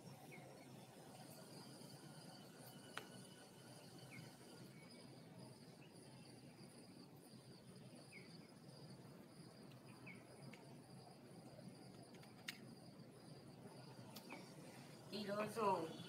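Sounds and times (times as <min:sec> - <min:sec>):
faint high-pitched chirring: 0:00.0 - 0:16.0.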